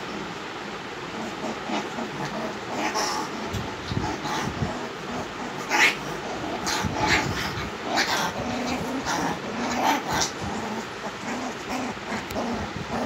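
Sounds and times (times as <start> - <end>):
puppies growling whining and yipping: 1.1 - 13.0.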